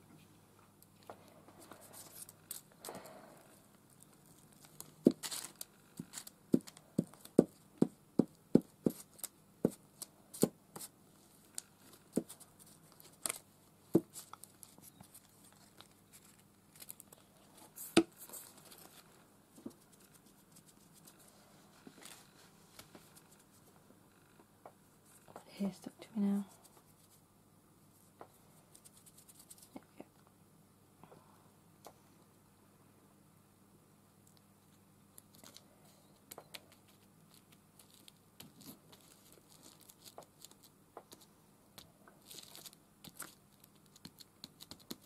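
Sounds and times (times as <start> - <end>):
paper rustling and crinkling: 4.2 - 7.4, 10.0 - 23.7, 36.5 - 41.3, 42.2 - 45.0.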